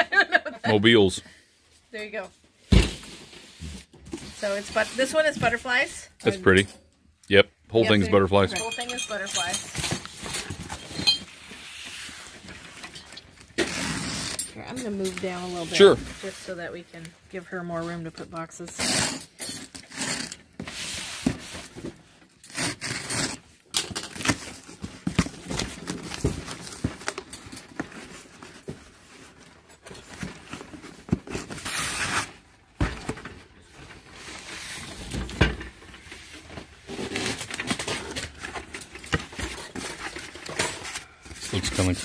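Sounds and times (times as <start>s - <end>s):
packing tape tearing: 13.4s - 14.6s, 18.8s - 21.0s, 22.4s - 28.5s, 30.6s - 32.5s, 36.9s - 42.0s
cardboard scraping and rustling: 15.2s - 16.6s, 24.1s - 42.0s.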